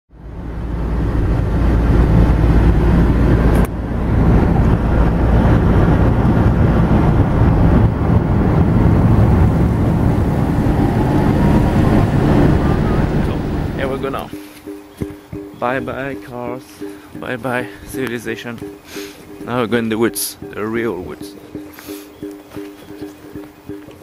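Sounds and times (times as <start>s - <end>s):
car cabin road and engine noise: 0.2s - 14.4s.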